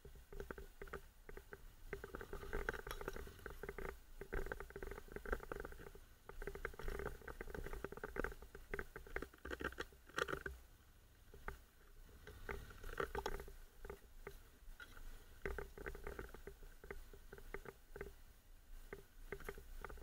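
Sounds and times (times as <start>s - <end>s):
knocks and rattles on dirt trail: 0.0s - 10.6s.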